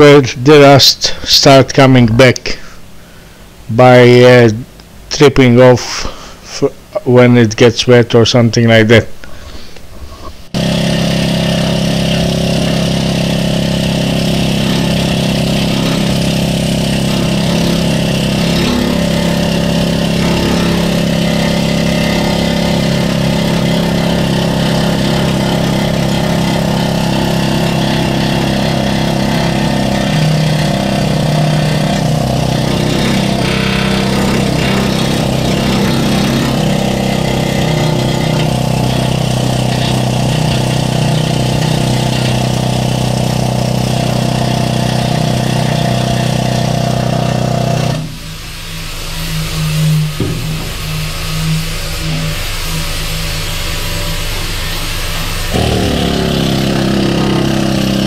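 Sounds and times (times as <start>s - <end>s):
needle scaler hammering steel: 10.6s - 48.1s, 55.5s - 58.0s.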